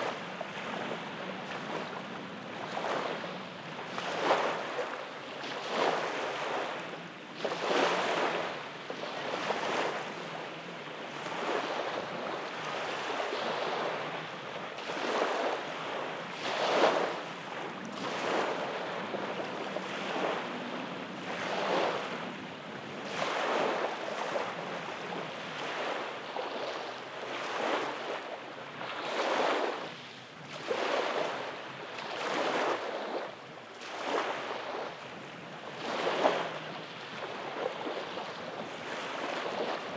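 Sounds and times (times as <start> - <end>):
small waves breaking on beach: 0.0 - 39.9.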